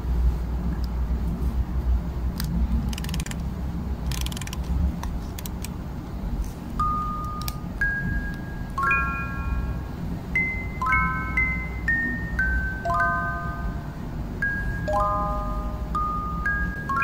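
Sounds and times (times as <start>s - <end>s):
plastic parts clicking: 2.4s - 5.8s
fast ratchet-like clicking: 2.8s - 4.8s
chime note: 8.0s - 17.0s.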